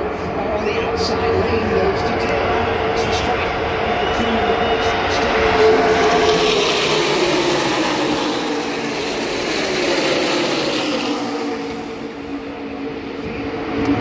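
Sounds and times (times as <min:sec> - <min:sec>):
race car engines passing: 0:03.4 - 0:14.0.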